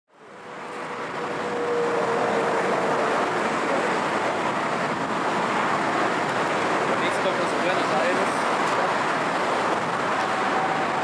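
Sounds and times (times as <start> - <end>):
jet engines roaring: 0.3 - 11.0.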